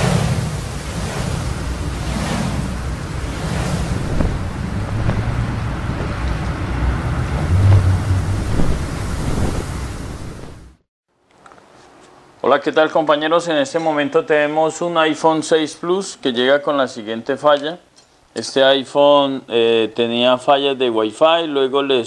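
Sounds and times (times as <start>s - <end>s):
deep rumble: 0.0s - 10.8s
rushing wind: 0.0s - 10.8s
whooshes: 0.0s - 10.8s.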